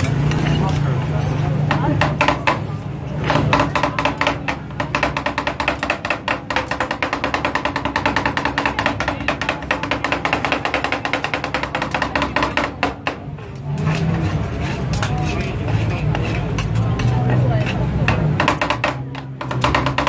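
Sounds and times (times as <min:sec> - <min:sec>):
metal spatulas chopping on metal: 0:00.0 - 0:20.0.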